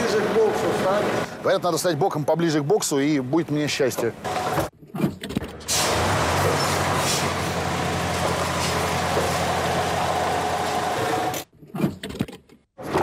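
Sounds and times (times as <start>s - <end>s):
diesel engine running: 5.8s - 11.4s.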